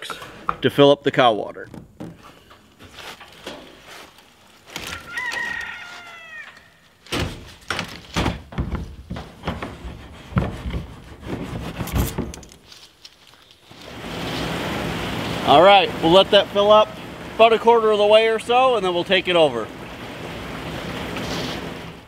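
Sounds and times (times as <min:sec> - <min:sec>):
knocks and clanks of water tank: 0:01.6 - 0:02.4, 0:07.2 - 0:12.5
rooster crowing: 0:04.8 - 0:06.9.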